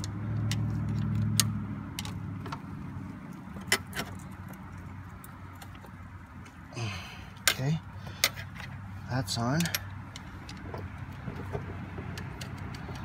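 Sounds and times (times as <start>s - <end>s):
metallic clicks of screwdriver: 12.1s - 13.0s.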